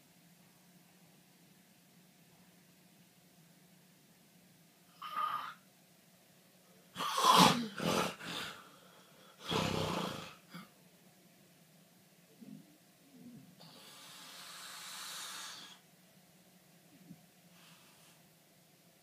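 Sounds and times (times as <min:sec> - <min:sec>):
person snoring and snorting: 0:07.0 - 0:08.7, 0:09.4 - 0:10.6.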